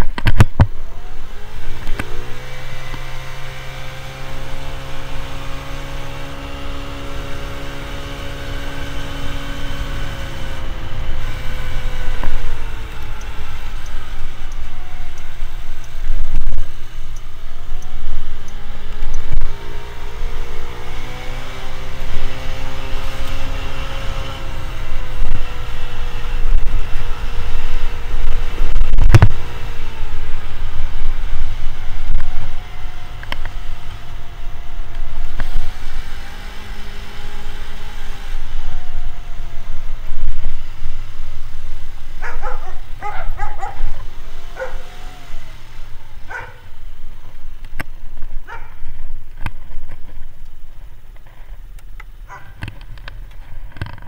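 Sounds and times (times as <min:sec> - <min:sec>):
motor scooter engine: 0:00.0 - 0:54.0
wind rumble on microphone: 0:14.0 - 0:19.9, 0:20.5 - 0:33.8.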